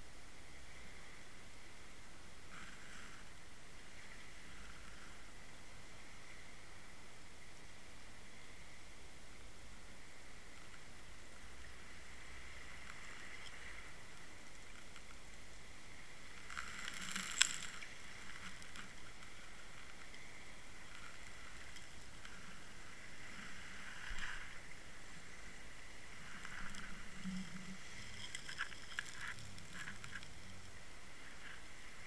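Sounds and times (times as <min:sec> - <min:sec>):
muffled underwater noise: 0:15.9 - 0:32.0
sand and shell clicking on case: 0:28.1 - 0:30.6.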